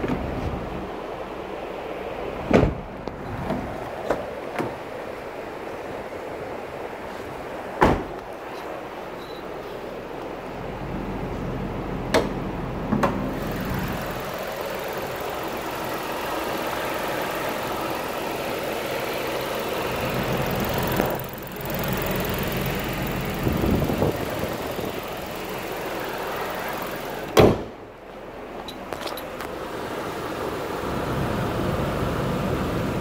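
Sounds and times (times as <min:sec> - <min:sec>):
small car engine idling: 0:08.4 - 0:33.0
loud knock: 0:27.4 - 0:27.7.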